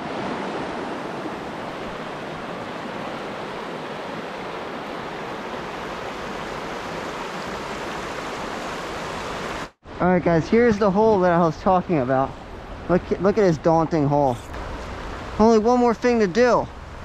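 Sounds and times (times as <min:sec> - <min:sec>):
stream rushing over stones: 0:00.0 - 0:09.8.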